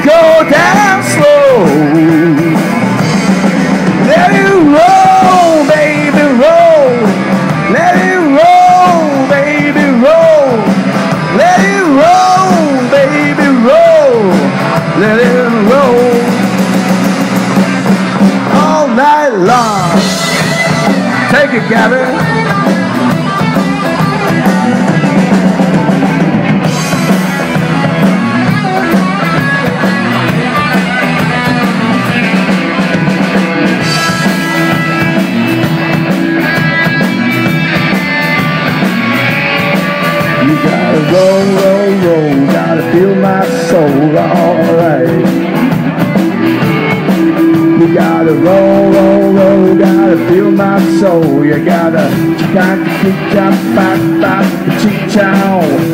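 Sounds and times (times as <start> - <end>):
man singing: 0.0 - 3.1, 3.9 - 16.7, 18.3 - 25.4, 36.5 - 45.8, 46.8 - 55.9
bass guitar: 0.0 - 55.9
drum kit: 0.0 - 55.9
electric guitar: 0.0 - 55.9.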